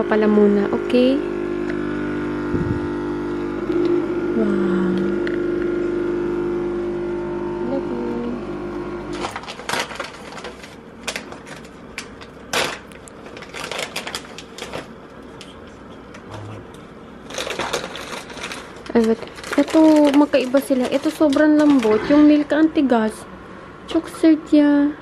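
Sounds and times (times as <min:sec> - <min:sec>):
coffee machine pump running: 0:00.0 - 0:24.6
plastic packaging crinkling: 0:09.2 - 0:15.6, 0:17.2 - 0:22.0.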